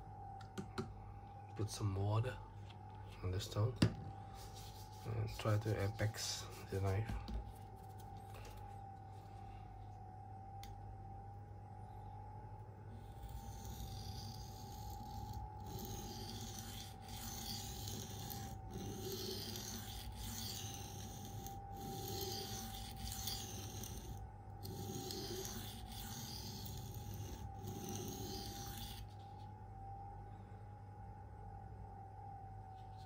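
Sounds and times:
faint steady hum: 0:00.0 - 0:33.0
blade scraping on sharpening plate: 0:13.3 - 0:29.0.

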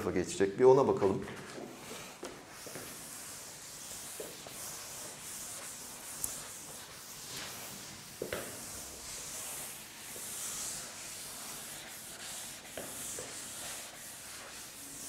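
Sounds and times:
rubbing on a board: 0:02.5 - 0:15.0.

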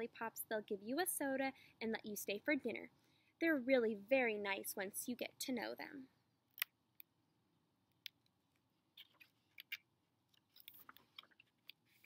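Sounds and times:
book clicks and rustles: 0:10.4 - 0:12.0.

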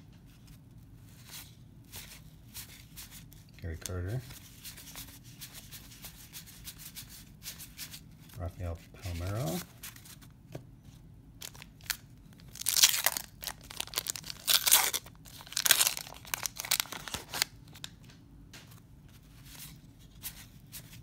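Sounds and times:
cards rustling and clicking: 0:00.3 - 0:10.3, 0:11.4 - 0:21.0
paper wrapper tearing: 0:11.4 - 0:17.9.

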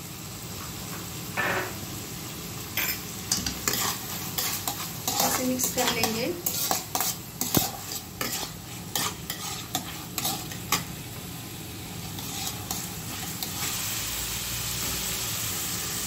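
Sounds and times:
vegetables sizzling in hot oil: 0:00.0 - 0:16.0
spatula clicking and scraping pan: 0:02.8 - 0:10.9, 0:12.0 - 0:13.8.

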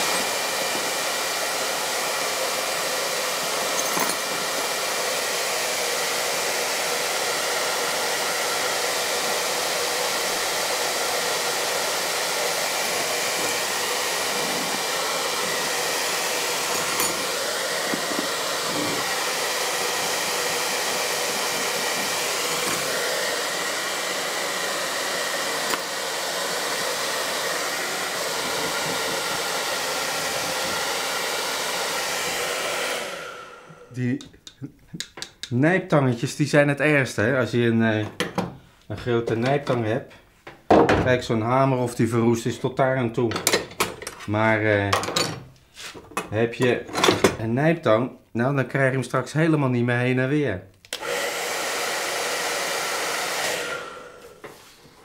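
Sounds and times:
hair dryer running: 0:00.0 - 0:34.1, 0:50.9 - 0:55.0.

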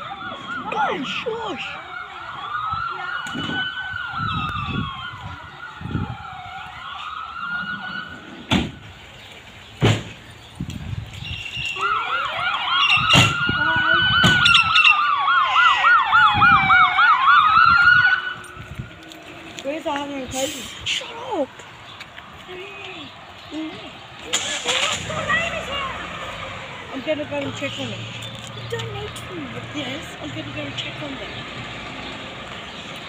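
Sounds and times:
fast yelping siren: 0:00.0 - 0:08.4, 0:11.7 - 0:18.6
wailing siren: 0:00.0 - 0:09.0, 0:11.6 - 0:20.5.

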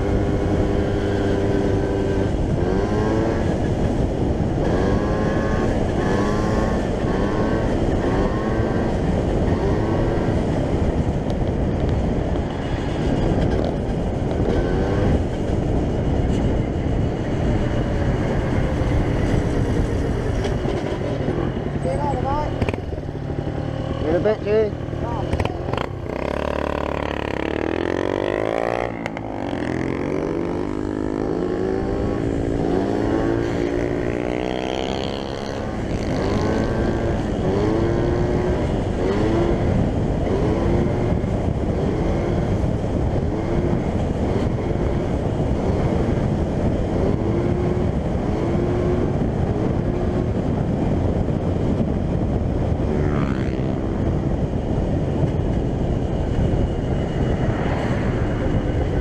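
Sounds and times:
wind noise rushing: 0:00.0 - 0:59.0
moped engine revving: 0:18.6 - 0:42.6.

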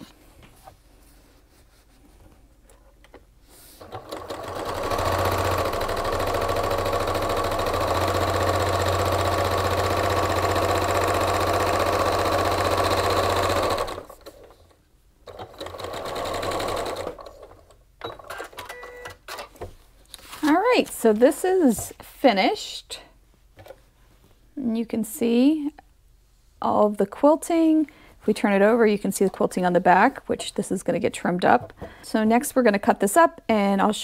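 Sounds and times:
sewing machine running: 0:03.8 - 0:14.4, 0:15.3 - 0:17.6.

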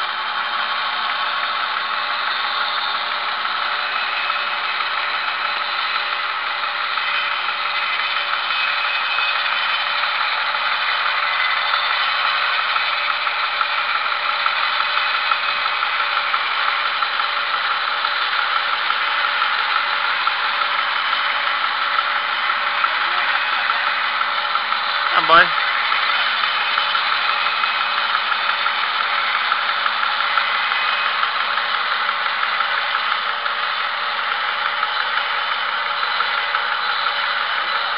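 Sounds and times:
bandsaw mill sawing log: 0:00.0 - 0:37.9.

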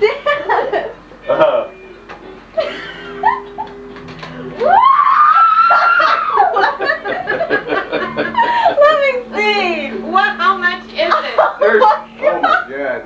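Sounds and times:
person laughing: 0:02.6 - 0:03.7, 0:05.5 - 0:08.9.

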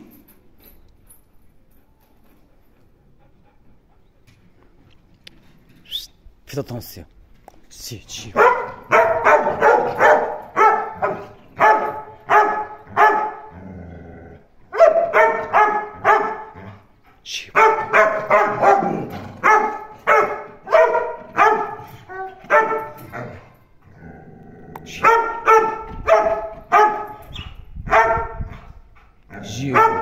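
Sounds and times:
dog barking: 0:08.4 - 0:13.5, 0:14.7 - 0:16.6, 0:17.6 - 0:23.4, 0:25.0 - 0:27.2, 0:27.8 - 0:28.5, 0:29.5 - 0:30.0.

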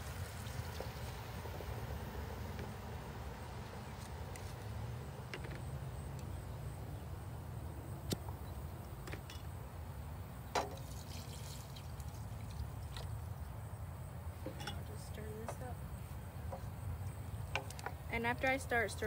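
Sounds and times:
low outdoor rumble: 0:00.0 - 0:19.0
glass jars clinking: 0:14.5 - 0:14.9.

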